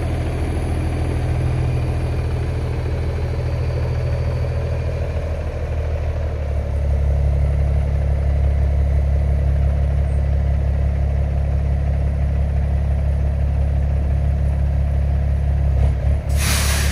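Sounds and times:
truck diesel engine rumbling: 0:00.0 - 0:16.9.

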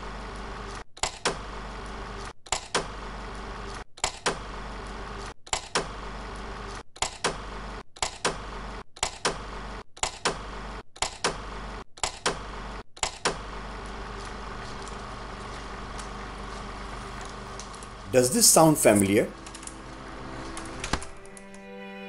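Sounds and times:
sharp mechanical clacks: 0:06.6 - 0:11.4, 0:12.0 - 0:12.4
steady hum: 0:13.6 - 0:21.6.

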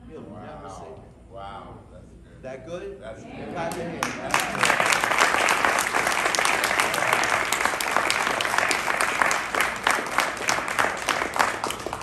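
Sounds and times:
people applauding: 0:03.6 - 0:12.0.

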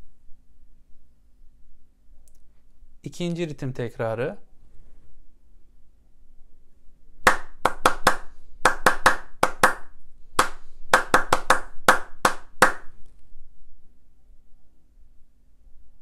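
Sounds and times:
hands clapping a rhythm: 0:07.2 - 0:13.0.

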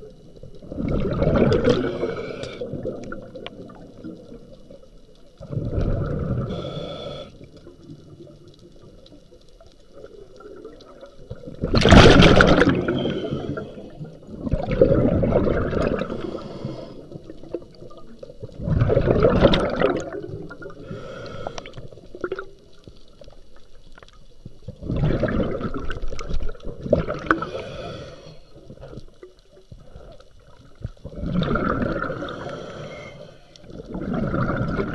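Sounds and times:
bubbles gurgling underwater: 0:00.0 - 0:06.7, 0:07.4 - 0:27.6, 0:28.6 - 0:32.9, 0:33.6 - 0:34.9
scuba regulator breathing hiss: 0:01.8 - 0:02.8, 0:06.4 - 0:07.7, 0:12.8 - 0:14.2, 0:16.0 - 0:17.4, 0:20.8 - 0:21.9, 0:27.3 - 0:28.6, 0:32.1 - 0:33.7.

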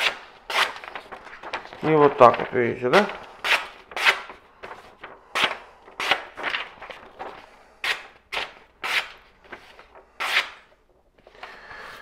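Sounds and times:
knife slicing paper: 0:00.0 - 0:04.4, 0:07.9 - 0:10.7.

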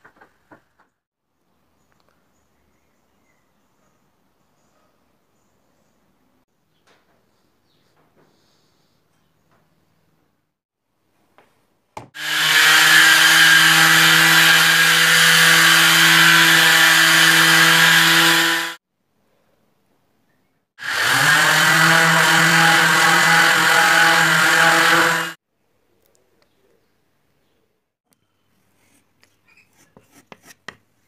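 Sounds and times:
orbital sander running: 0:12.2 - 0:18.8, 0:20.8 - 0:25.4.

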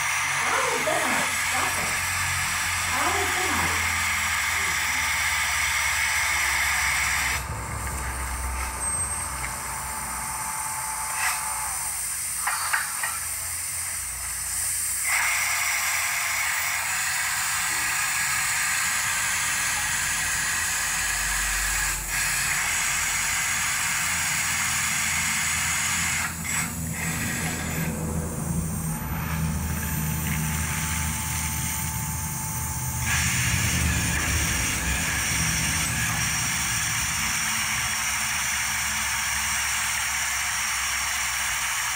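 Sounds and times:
drilling rig engine humming: 0:00.0 - 0:12.3, 0:17.5 - 0:40.0.

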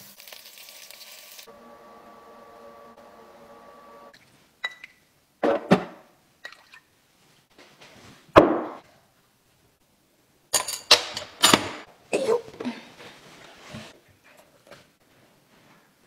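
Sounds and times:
kitchen utensils clattering: 0:10.6 - 0:11.9.

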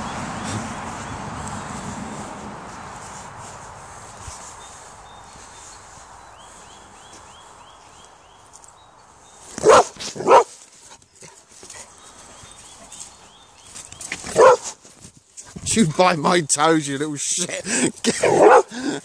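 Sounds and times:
dog barking: 0:09.6 - 0:10.5, 0:14.3 - 0:14.8, 0:18.2 - 0:18.7.

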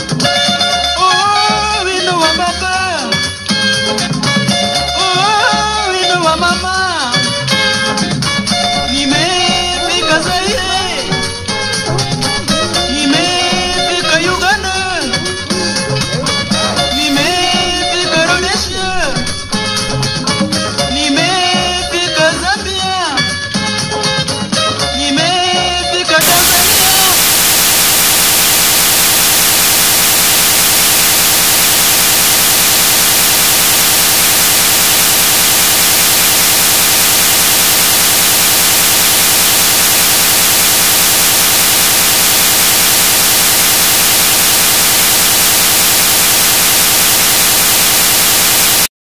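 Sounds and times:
white noise static hiss: 0:08.3 - 0:22.1, 0:26.2 - 0:48.9.

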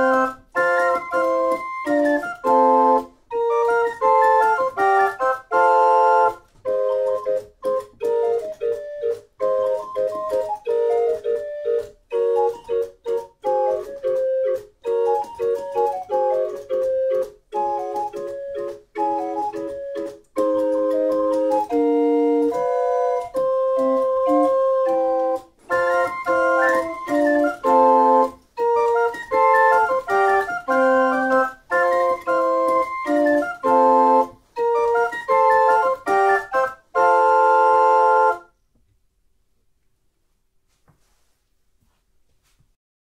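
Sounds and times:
small pipe organ playing chords: 0:00.0 - 0:38.5.

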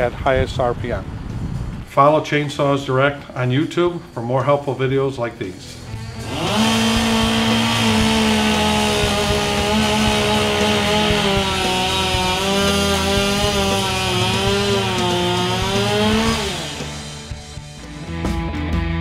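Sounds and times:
chainsaw cutting log: 0:05.9 - 0:17.8.

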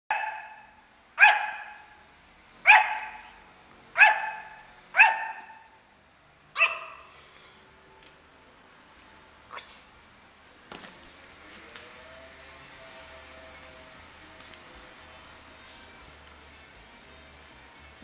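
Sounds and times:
small dog barking: 0:00.1 - 0:02.0, 0:02.6 - 0:03.3, 0:04.0 - 0:05.7, 0:06.6 - 0:07.1.

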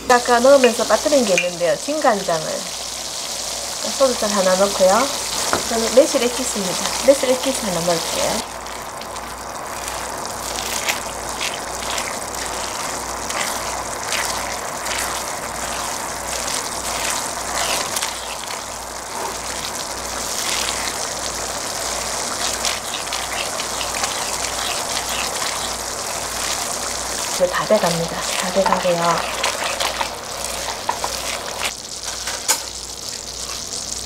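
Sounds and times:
sauce sizzling and bubbling: 0:00.0 - 0:34.0
spatula stirring sauce: 0:08.4 - 0:31.7.

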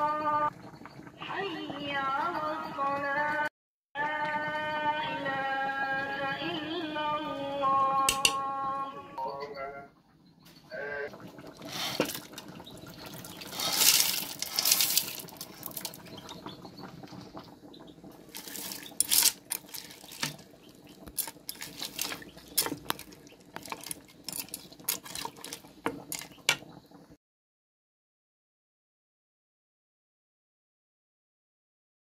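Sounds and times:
beans poured into pot with splash: 0:11.7 - 0:12.4, 0:13.1 - 0:16.1, 0:18.3 - 0:20.5, 0:21.1 - 0:26.3
metal spoon clinking against pot: 0:21.1 - 0:26.3.

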